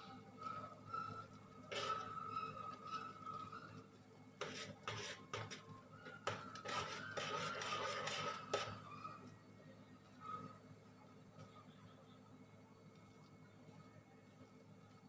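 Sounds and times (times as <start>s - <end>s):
metal spoon scraping a wok: 0.6s - 3.8s, 4.4s - 8.9s.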